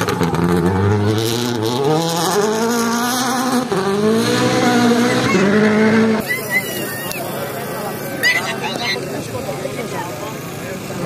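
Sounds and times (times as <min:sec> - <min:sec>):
rally car accelerating past: 0:00.0 - 0:06.2.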